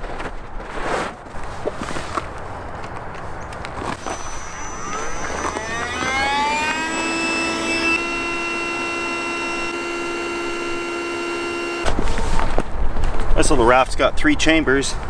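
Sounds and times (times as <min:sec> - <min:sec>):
electric air pump whine: 0:03.9 - 0:12.2.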